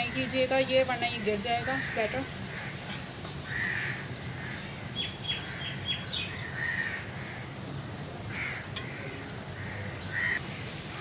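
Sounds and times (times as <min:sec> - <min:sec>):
crows cawing: 0:01.2 - 0:07.6, 0:08.3 - 0:10.4.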